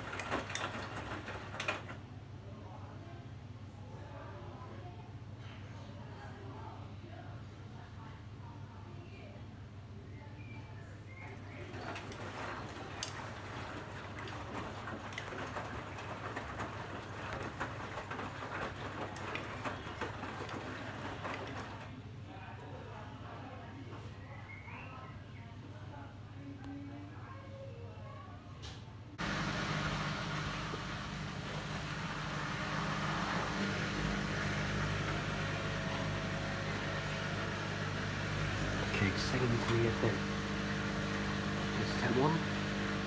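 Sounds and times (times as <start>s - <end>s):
washing machine drum tumbling laundry: 0.0s - 2.1s, 11.2s - 21.9s, 29.2s - 43.0s
water sloshing and splashing: 11.3s - 21.9s
low motor hum: 29.2s - 43.0s.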